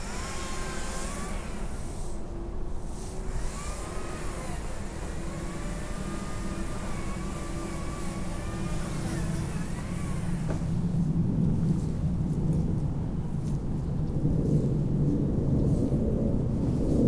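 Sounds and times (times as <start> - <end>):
engine running: 0.0 - 12.7.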